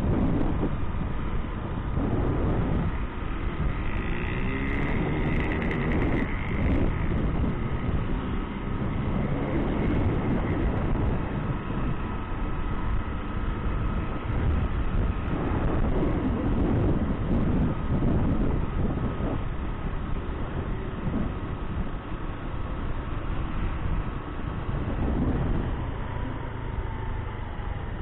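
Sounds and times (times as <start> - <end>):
motorcycle engine running: 0.0 - 28.0
wind rushing over microphone: 0.0 - 28.0.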